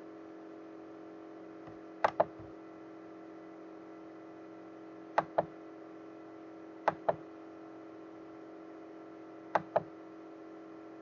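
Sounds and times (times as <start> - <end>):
steady low hum: 0.0 - 11.0
computer mouse clicks: 2.0 - 2.3, 6.9 - 7.2, 9.6 - 9.9.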